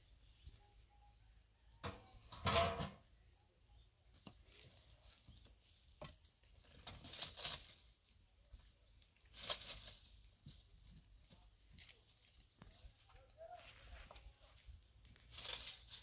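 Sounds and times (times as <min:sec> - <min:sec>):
twigs rustling and crackling: 0:04.2 - 0:16.0.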